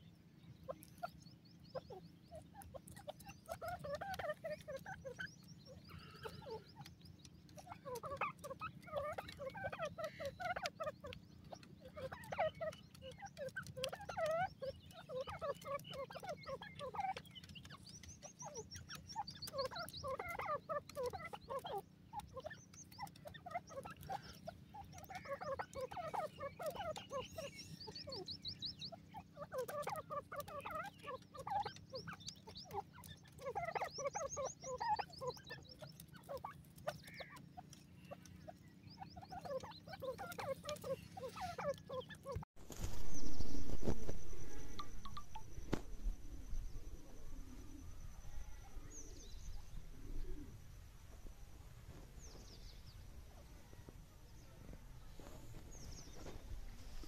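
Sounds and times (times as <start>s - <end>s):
high rapid bird trill: 0.7s - 42.5s.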